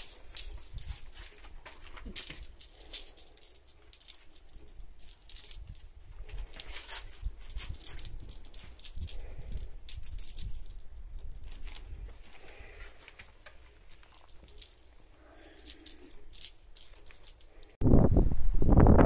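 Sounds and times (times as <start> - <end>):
cat scuffling with toy: 0.0 - 17.8
wind buffeting microphone: 17.8 - 19.0.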